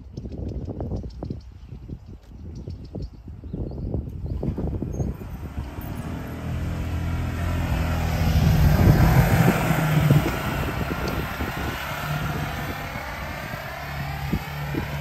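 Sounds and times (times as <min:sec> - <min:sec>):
utility vehicle engine passing: 0:04.3 - 0:15.0.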